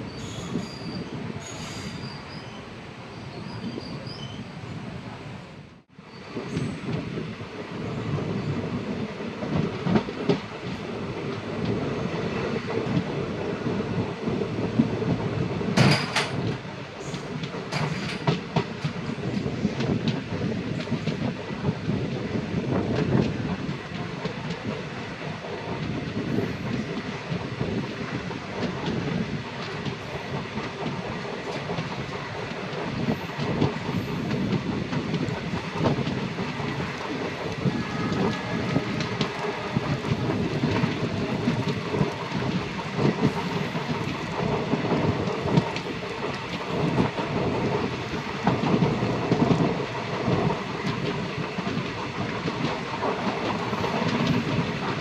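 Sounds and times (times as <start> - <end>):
train rumbling on track: 0.0 - 55.0
train wheels clicking over rail joints: 9.3 - 55.0.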